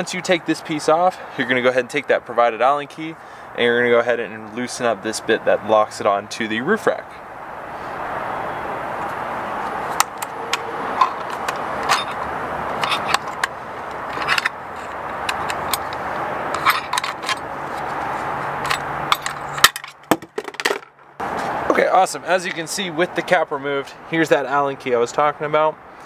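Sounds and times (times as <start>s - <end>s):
steady rushing background noise: 7.2s - 22.6s
tools clicking and scraping plastic: 10.0s - 20.0s.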